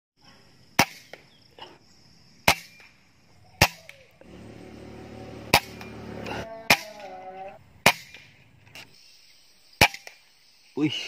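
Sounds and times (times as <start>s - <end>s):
steady low hum: 4.2s - 6.7s
air rifle shots: 5.5s - 6.0s.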